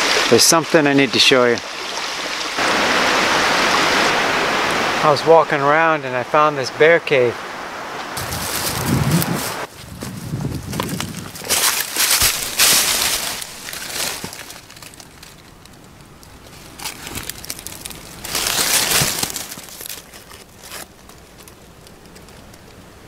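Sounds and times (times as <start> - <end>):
dry leaves rustling: 8.2 - 22.9.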